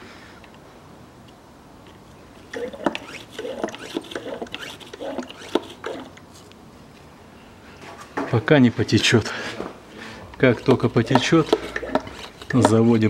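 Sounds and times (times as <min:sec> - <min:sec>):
squeaking hand pump strokes: 0:02.5 - 0:06.2, 0:10.4 - 0:13.0.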